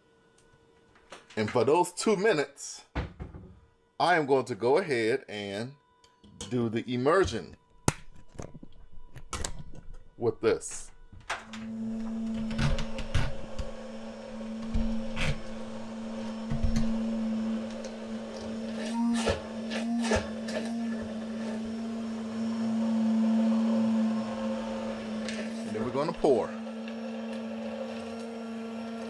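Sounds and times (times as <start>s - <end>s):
immersion blender motor: 11.6s - 29.0s.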